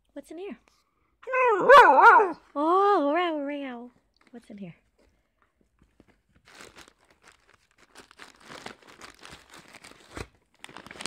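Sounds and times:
crinkling foil packet: 5.9 - 11.0.

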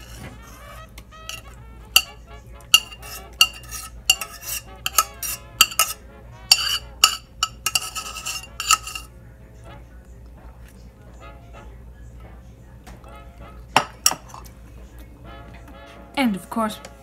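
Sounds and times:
metal spoon scraping saucepan: 0.0 - 9.1, 13.8 - 14.5.

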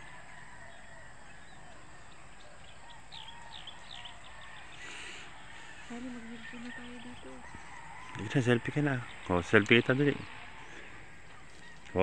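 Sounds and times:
faint lower bird calls: 0.0 - 12.0
steady background hiss: 0.0 - 12.0.

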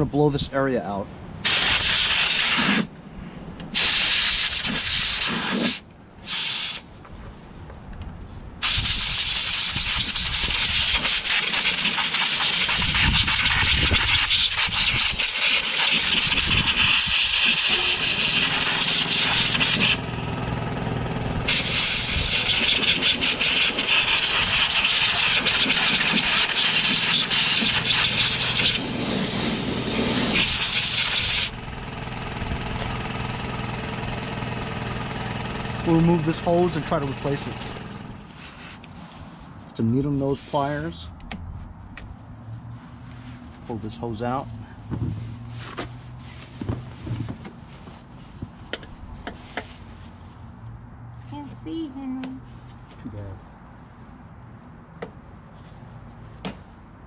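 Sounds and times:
compressed air blasting: 1.4 - 2.9, 3.7 - 6.9, 8.6 - 38.3.

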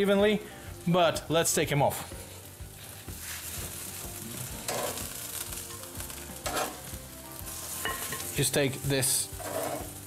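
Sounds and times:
chicken wings sizzling on grill: 0.0 - 10.0.

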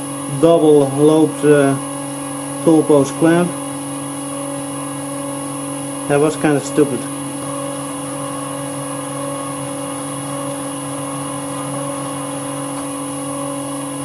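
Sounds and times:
drill cutting metal bar: 0.0 - 3.9
metal lathe running: 0.0 - 14.0.

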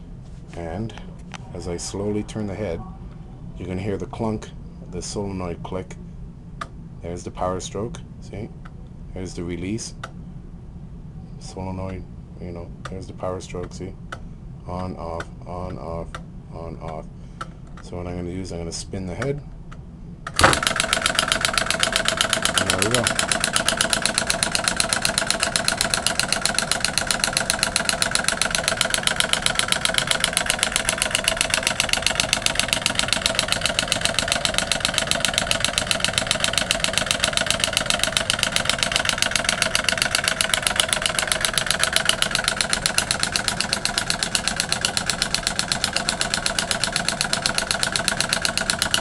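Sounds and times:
solenoid motor clattering clicks: 20.3 - 49.0.

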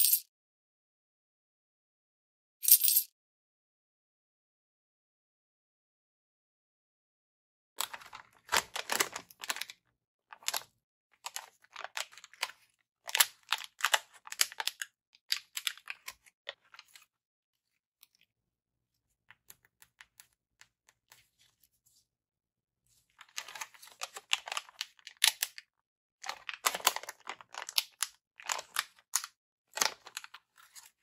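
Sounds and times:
packaging rustling and crackling: 7.8 - 9.7, 26.2 - 29.1.

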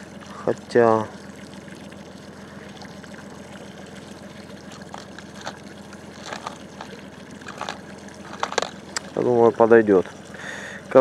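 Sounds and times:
low steady hum: 0.0 - 11.0
water lapping against boat hull: 0.0 - 11.0
fishing tackle clicks: 6.2 - 8.8.

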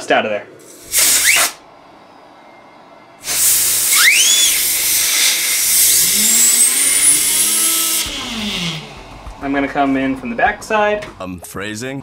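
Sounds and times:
compressed air hissing: 0.6 - 1.6, 3.2 - 9.9
fan whistle rising: 0.9 - 10.9.

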